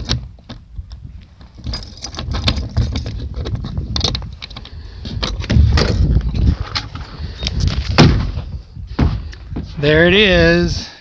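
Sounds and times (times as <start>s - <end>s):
wind rumble on microphone: 0.0s - 10.9s
keys and door latch rattling: 1.4s - 6.1s.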